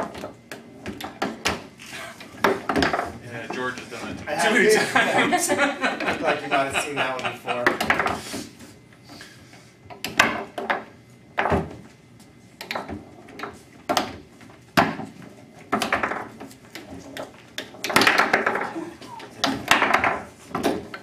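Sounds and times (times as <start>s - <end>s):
foosball knocks: 2.4s - 3.2s, 7.6s - 8.2s, 12.6s - 21.0s.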